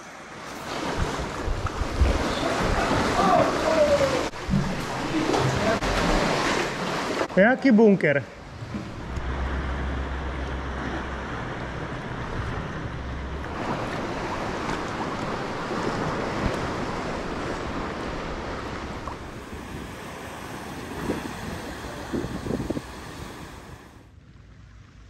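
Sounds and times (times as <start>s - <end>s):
sea waves washing: 0.0s - 24.2s
wind buffeting the microphone: 0.9s - 4.6s, 11.6s - 24.0s.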